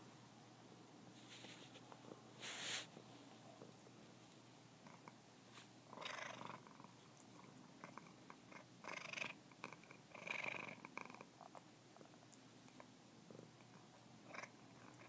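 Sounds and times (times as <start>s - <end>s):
cat purring: 1.2s - 15.0s.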